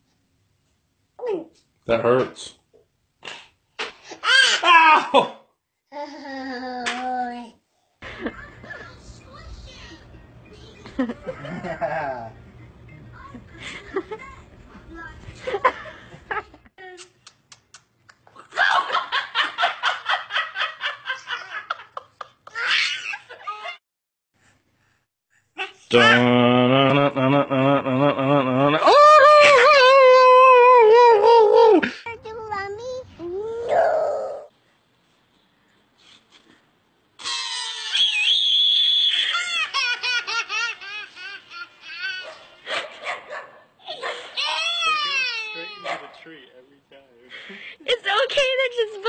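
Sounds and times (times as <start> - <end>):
person laughing hard: 26.0 - 32.0
toddler screaming and sobbing: 37.2 - 38.5, 44.3 - 45.8.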